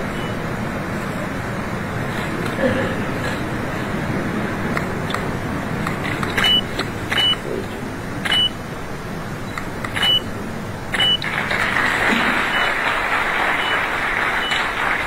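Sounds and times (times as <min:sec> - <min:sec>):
crowded hall background noise: 0:00.0 - 0:15.0
sharp clicks with high beeps: 0:06.0 - 0:07.4, 0:08.2 - 0:08.6, 0:09.5 - 0:10.3, 0:10.9 - 0:11.3, 0:14.4 - 0:14.6.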